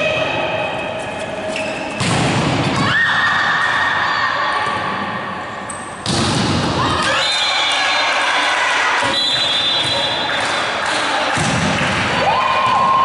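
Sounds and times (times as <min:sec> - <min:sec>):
ball thuds in sports hall: 0:02.0 - 0:02.9, 0:06.0 - 0:07.1, 0:11.3 - 0:12.9.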